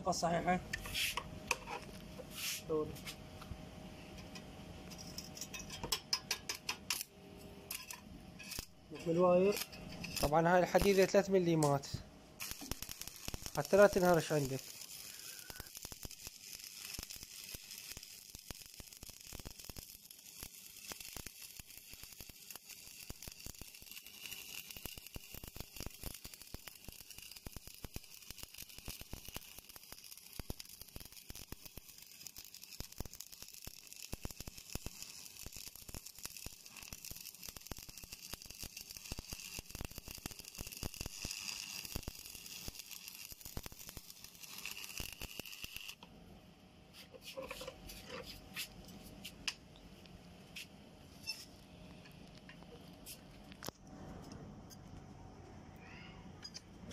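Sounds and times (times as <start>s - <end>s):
welding arc crackling: 4.9s - 46.1s.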